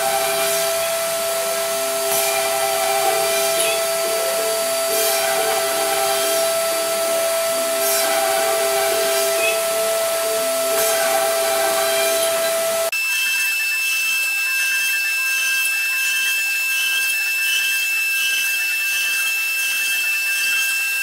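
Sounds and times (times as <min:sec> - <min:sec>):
router bit cutting rasp: 0:00.0 - 0:12.9
steady hiss: 0:00.0 - 0:12.9
stepper motors whining: 0:00.0 - 0:15.6
cnc spindle whine: 0:00.0 - 0:21.0.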